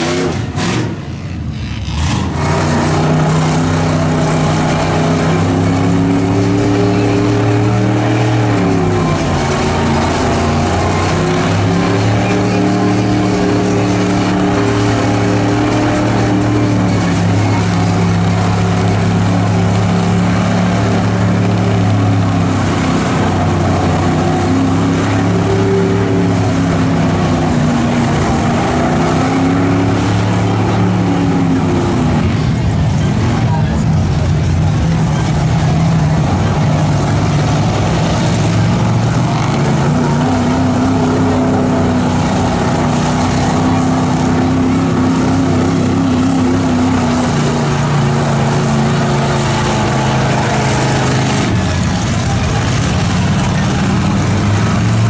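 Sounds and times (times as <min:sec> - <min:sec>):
vehicle engine revving: 0:00.0 - 0:55.0.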